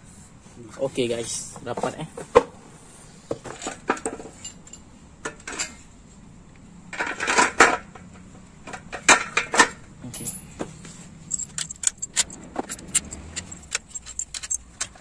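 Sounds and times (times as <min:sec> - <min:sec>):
metal engine casing clinking: 0:03.4 - 0:05.8, 0:06.9 - 0:15.0.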